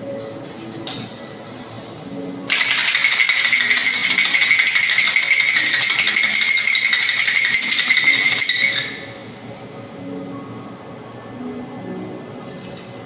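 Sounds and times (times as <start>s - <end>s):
ice rattling in cocktail shaker: 2.5s - 9.2s.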